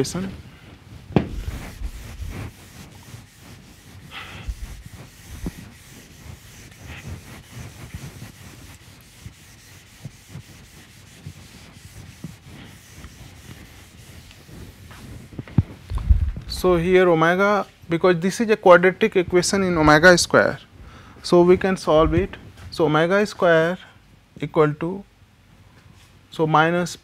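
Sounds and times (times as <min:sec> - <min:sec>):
eraser rubbing on whiteboard: 0:01.1 - 0:17.0.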